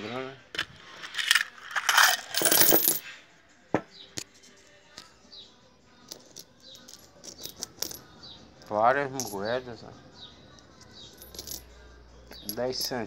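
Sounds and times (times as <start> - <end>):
coins clattering: 0.6 - 3.1, 6.1 - 9.6, 10.6 - 13.0
single coins clinking: 1.0 - 3.0, 6.1 - 9.6, 10.5 - 13.0.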